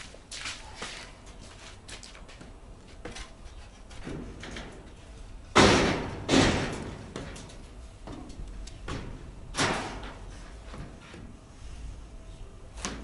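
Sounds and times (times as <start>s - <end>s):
loud ringing bangs: 5.5s - 7.2s.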